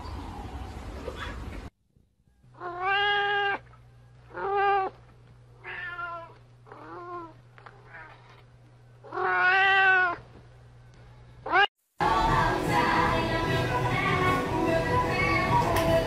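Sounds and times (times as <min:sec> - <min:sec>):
low steady hum: 0:00.0 - 0:15.8
cat meowing: 0:02.6 - 0:03.7, 0:04.3 - 0:05.0, 0:05.6 - 0:08.4, 0:09.0 - 0:10.3, 0:11.4 - 0:11.7.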